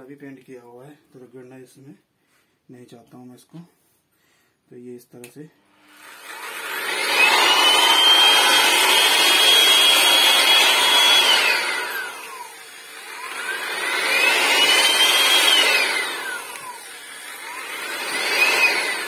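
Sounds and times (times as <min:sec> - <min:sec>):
electric sander motor whining: 0:05.7 - 0:19.0.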